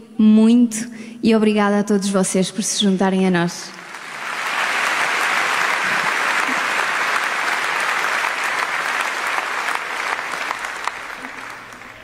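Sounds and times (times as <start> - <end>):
large audience applauding: 3.7 - 12.0.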